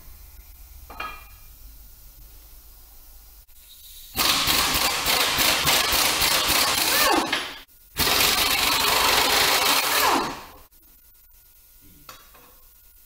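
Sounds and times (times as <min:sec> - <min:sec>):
wire wheel grinder on metal: 0:04.2 - 0:07.4, 0:08.0 - 0:10.6.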